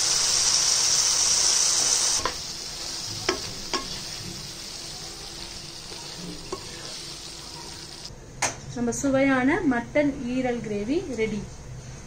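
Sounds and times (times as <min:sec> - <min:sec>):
liver sizzling in a frying pan: 0:00.0 - 0:08.1.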